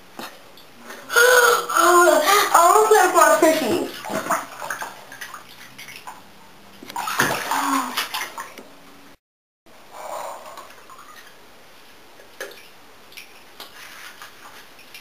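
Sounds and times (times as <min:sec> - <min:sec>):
bathwater sloshing and splashing: 0:01.8 - 0:08.8, 0:10.5 - 0:15.0.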